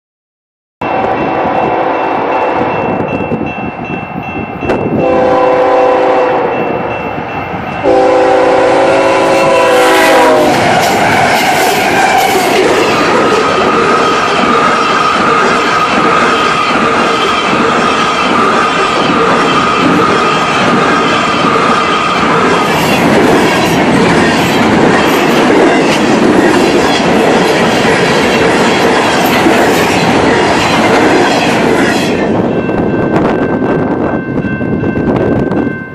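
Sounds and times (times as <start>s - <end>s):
locomotive rushing past: 4.9s - 34.1s
locomotive horn blasts: 5.0s - 6.6s, 7.8s - 10.6s
train wheels clacking over rail joints: 10.1s - 32.2s.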